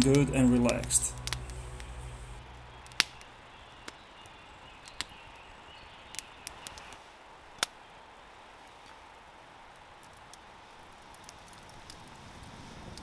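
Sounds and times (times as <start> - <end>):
campfire crackling: 0.0 - 13.0.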